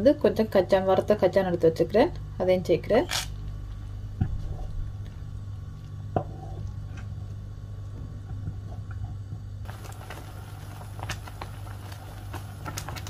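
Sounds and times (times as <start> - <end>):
low hum: 0.0 - 13.0
liquid bubbling and squishing: 4.0 - 13.0.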